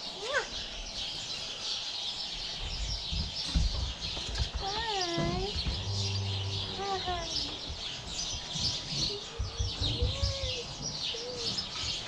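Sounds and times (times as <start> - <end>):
small birds chirping: 0.0 - 12.0
low bumps and rustles: 2.7 - 11.8.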